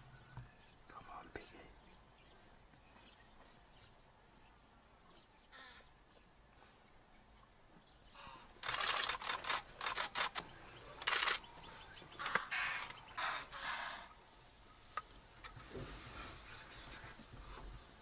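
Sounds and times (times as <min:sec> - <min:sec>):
rustling and scraping in dry grass: 0:08.0 - 0:18.0.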